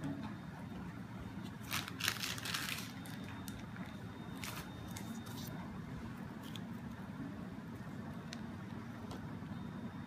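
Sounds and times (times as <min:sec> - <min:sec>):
steady low hum: 0:00.0 - 0:10.0
crinkly rustling: 0:01.6 - 0:05.5.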